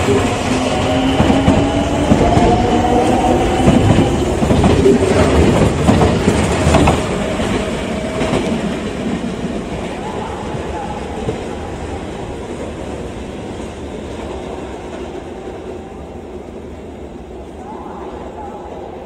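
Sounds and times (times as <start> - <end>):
train wheels clacking over rail joints: 0.0 - 10.0.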